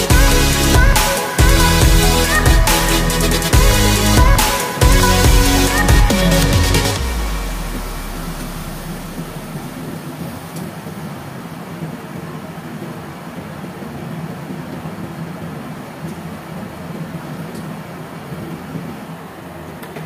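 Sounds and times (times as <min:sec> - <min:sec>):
deep low rumble: 0:00.0 - 0:09.9.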